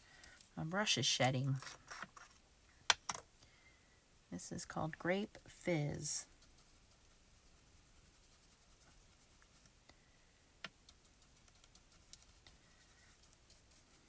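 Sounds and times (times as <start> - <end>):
paintbrush brushing: 5.6 - 9.9, 10.7 - 14.0.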